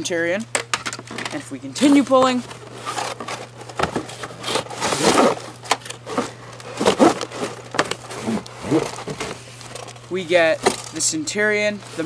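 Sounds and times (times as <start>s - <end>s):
cardboard box scraping: 1.9s - 9.5s
plastic wrapping crinkling: 1.9s - 11.0s.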